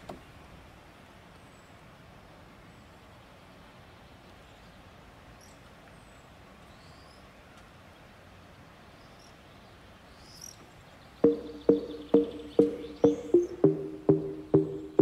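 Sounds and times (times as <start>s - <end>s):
bird chirps: 11.2s - 15.0s.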